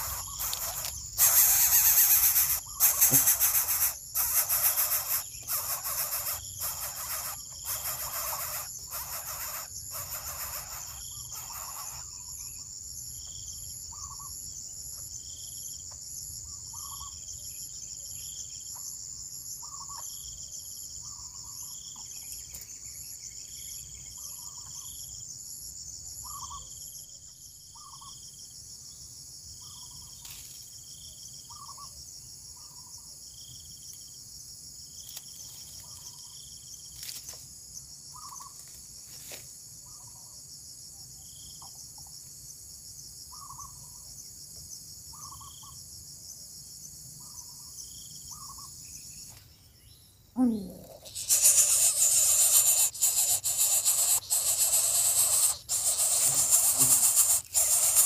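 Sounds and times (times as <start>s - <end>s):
short repeated calls: 0.0s - 12.0s, 50.4s - 58.0s
high-pitched insect chorus: 0.0s - 58.0s
fast pulsing trill: 51.1s - 58.0s.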